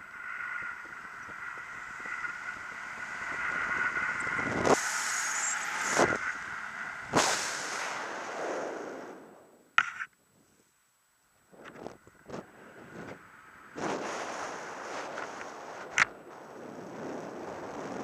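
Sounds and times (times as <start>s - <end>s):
wind buffeting microphone: 0.0s - 9.2s
steady high whine: 0.0s - 18.0s.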